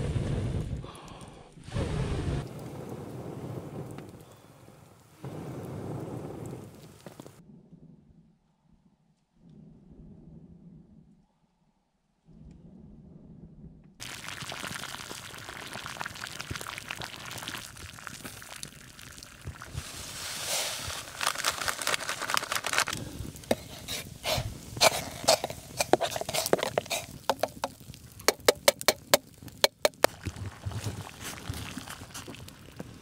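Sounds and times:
fire crackling: 0:00.0 - 0:07.4, 0:14.0 - 0:33.0
water boiling in pot: 0:01.8 - 0:07.4, 0:14.0 - 0:33.0.

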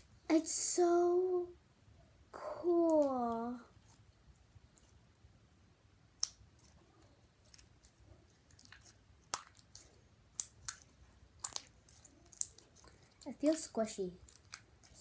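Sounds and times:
slime squeezed with wet pops: 0:07.5 - 0:13.6, 0:14.2 - 0:15.0.

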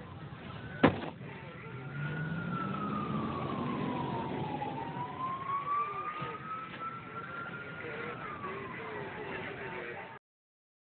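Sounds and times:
fire engine siren wailing: 0:01.4 - 0:09.9.

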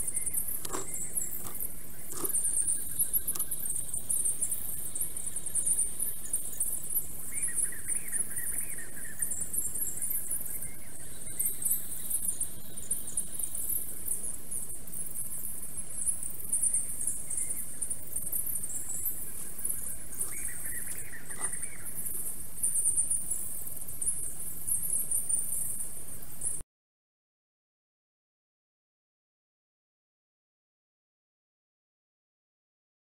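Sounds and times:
sped-up squeaky bird twittering: 0:00.0 - 0:26.6
low bird call: 0:18.9 - 0:22.3.

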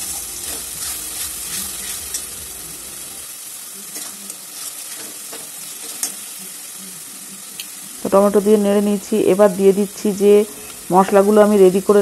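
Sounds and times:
paste sizzling in oil: 0:00.0 - 0:12.0
metal spatula scraping pan: 0:00.2 - 0:02.3.

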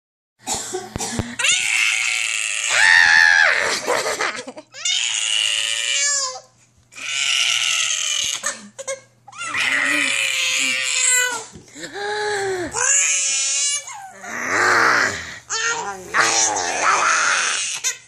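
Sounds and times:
baby girl shrieking: 0:15.5 - 0:18.0.

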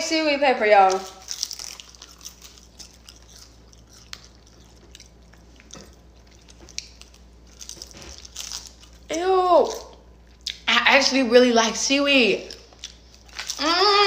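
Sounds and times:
crunching seaweed snack: 0:00.9 - 0:09.1, 0:12.7 - 0:13.9.

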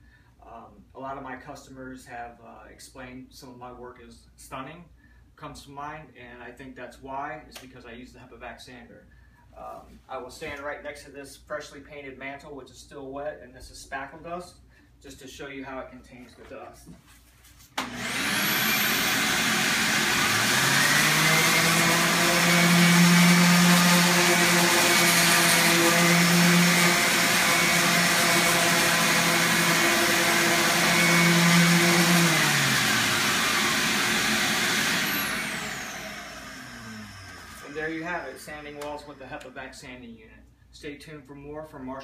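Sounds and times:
electric sander humming: 0:17.8 - 0:38.8
shop vacuum whine and rush: 0:17.8 - 0:39.2.

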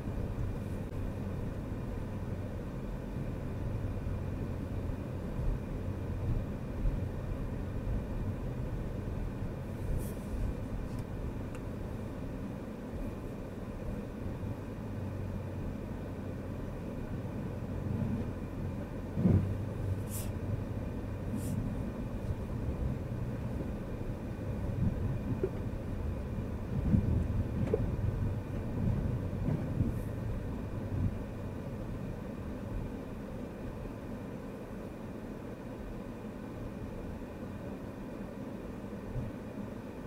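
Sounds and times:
brief hisses: 0:20.0 - 0:20.4, 0:21.3 - 0:21.7.

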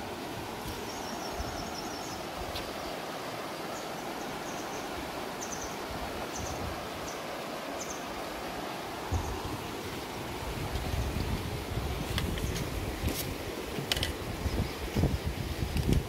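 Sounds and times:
stream running over rocks: 0:00.0 - 0:16.0
wind rumble on microphone: 0:05.9 - 0:07.0, 0:09.0 - 0:16.0.

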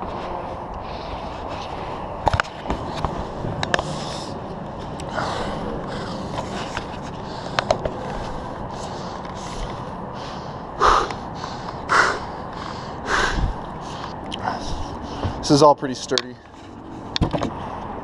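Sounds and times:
sharp breath through the nose: 0:05.1 - 0:15.4
footsteps on wooden catwalk: 0:14.7 - 0:15.6.

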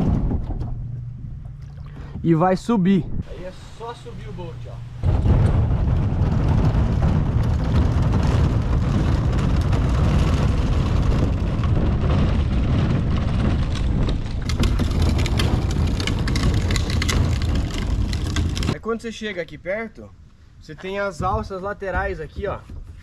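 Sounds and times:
wind rumble on microphone: 0:00.0 - 0:18.8
sharp clicks and knocks: 0:05.0 - 0:18.8.

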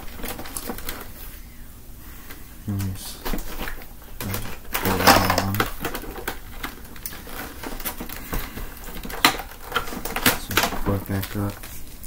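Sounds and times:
plastic hose clicking and clattering: 0:03.2 - 0:11.7.

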